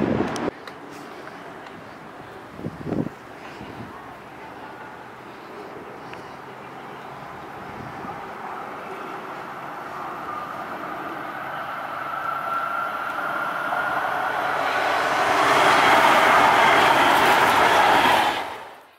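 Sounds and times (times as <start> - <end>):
light rail train passing: 0.0 - 18.9.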